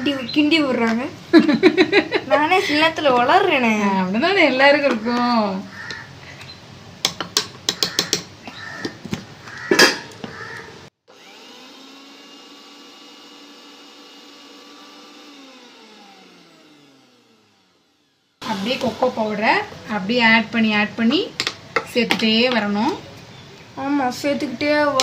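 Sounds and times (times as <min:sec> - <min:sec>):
mixer grinder motor whine: 0:11.0 - 0:21.0.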